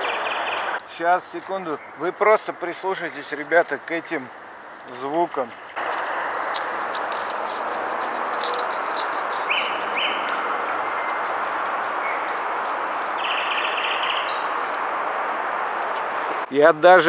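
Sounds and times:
bird fast trill: 0.0s - 0.8s, 8.1s - 10.3s, 11.8s - 14.6s
birds chirping and whistling: 0.0s - 0.8s, 5.1s - 6.9s, 8.1s - 14.7s.

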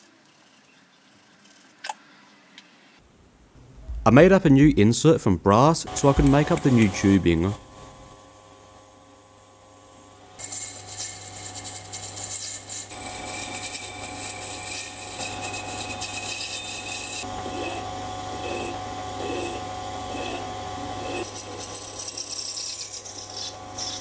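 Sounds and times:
hand file rasping on brass: 10.4s - 17.8s, 18.4s - 20.4s, 21.0s - 24.0s
lathe motor humming: 10.5s - 24.0s.

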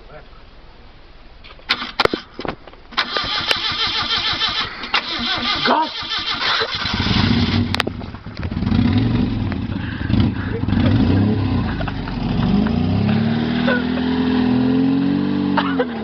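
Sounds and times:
vehicle engine starting: 1.6s - 16.0s.

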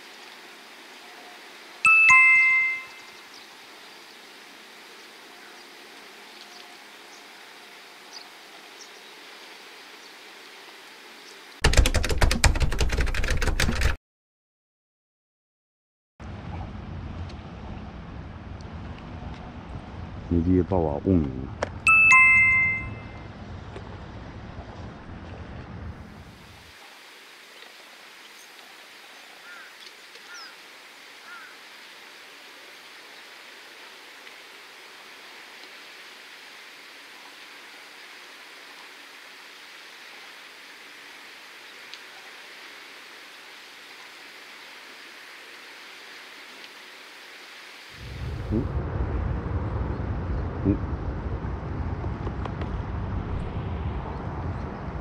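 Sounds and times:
sea and wind hiss: 0.0s - 11.6s, 25.9s - 49.7s
faint outdoor ambience: 0.0s - 11.9s, 16.2s - 55.0s
small high chirps: 1.8s - 3.4s
typewriter keystroke clicking: 11.6s - 14.0s
short bird calls: 29.4s - 30.6s, 31.2s - 31.6s.

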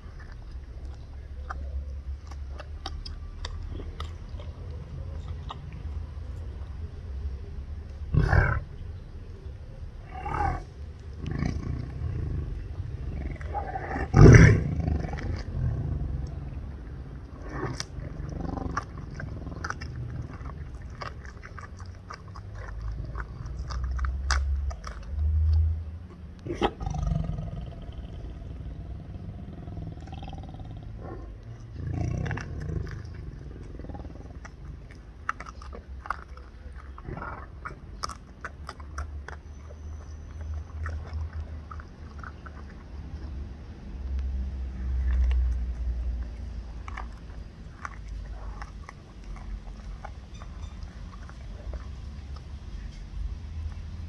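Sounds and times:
chewing clicks: 0.0s - 54.0s
tiger roaring: 8.1s - 8.7s, 10.0s - 16.3s, 17.3s - 20.6s, 26.4s - 34.6s.

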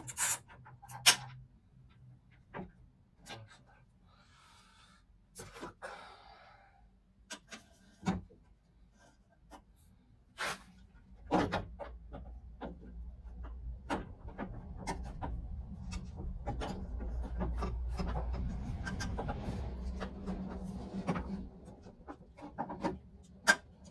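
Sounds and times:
low rumble: 14.1s - 22.1s.

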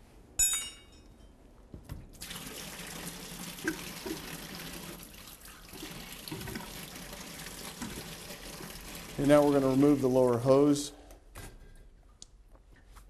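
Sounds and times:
light metal clink: 0.4s - 1.4s
coolant pouring into drain pan: 2.2s - 10.2s.

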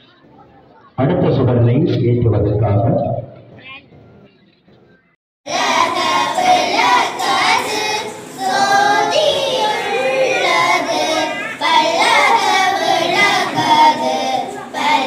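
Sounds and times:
children singing: 5.5s - 15.0s.

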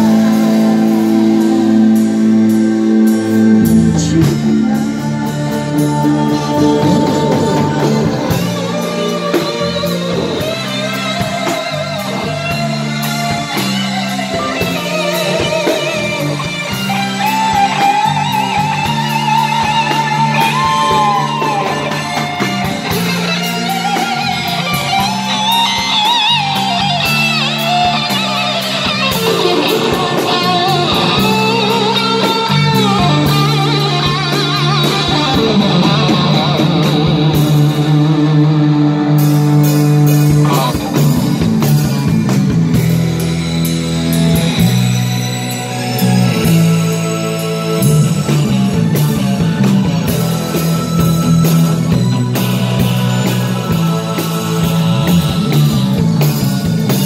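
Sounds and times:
electric guitar: 0.0s - 57.0s
low bass notes: 0.0s - 57.0s
woman singing into microphone: 3.4s - 10.6s.

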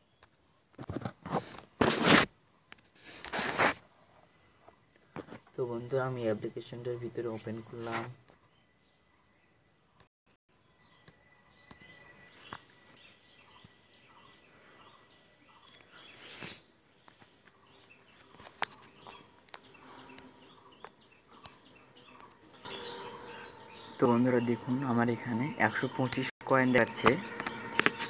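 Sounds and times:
faint birds chirping: 0.0s - 28.0s.

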